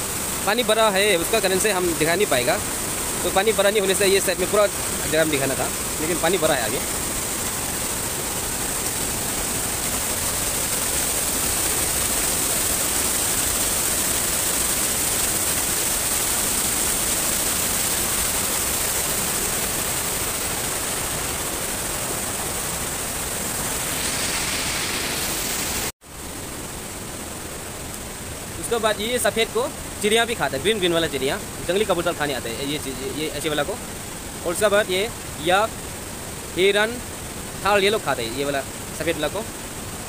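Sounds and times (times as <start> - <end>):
river rushing through rapids: 0.0 - 25.9
waterfall splashing onto rocks: 0.0 - 40.0.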